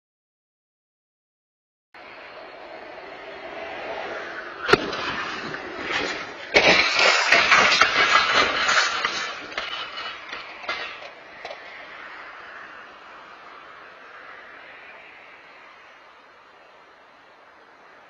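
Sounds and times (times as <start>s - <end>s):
sharp bang: 4.6s - 11.1s
car crash: 4.6s - 13.0s.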